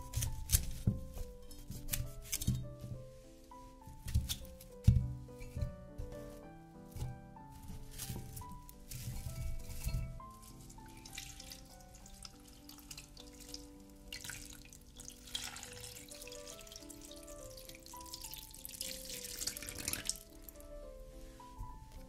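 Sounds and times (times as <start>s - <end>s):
soft background music: 0.0s - 22.0s
water pouring into a glass bowl: 10.9s - 20.2s.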